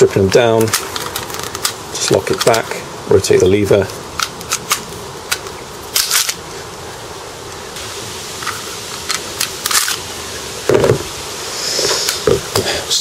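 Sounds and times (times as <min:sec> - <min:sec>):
pistol slide clicks and scrapes: 0:04.2 - 0:06.4.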